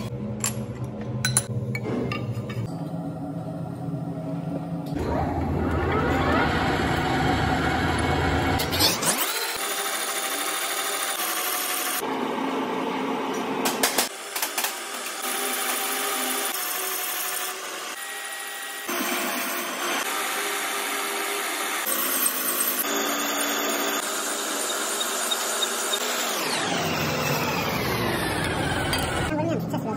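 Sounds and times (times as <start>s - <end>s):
cutting tool shaving metal: 15.8s - 29.3s
metal lathe running: 19.7s - 29.3s.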